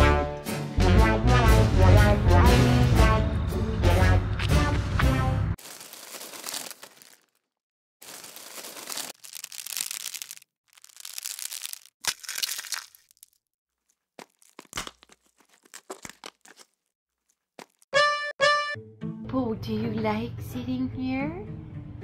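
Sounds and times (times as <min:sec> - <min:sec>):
crisps crackling and crunching: 0:05.6 - 0:17.9
paper wrapper rustling: 0:05.6 - 0:17.9.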